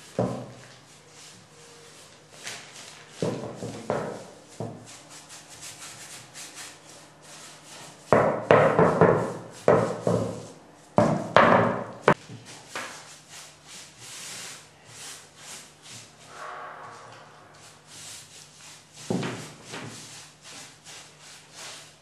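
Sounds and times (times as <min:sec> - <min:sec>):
brush stroking varnish on wood: 0:02.8 - 0:10.9, 0:12.5 - 0:22.0.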